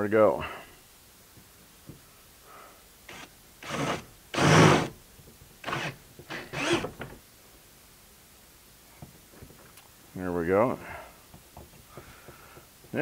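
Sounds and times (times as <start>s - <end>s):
power drill boring through plastic: 3.1s - 4.9s, 5.6s - 7.0s.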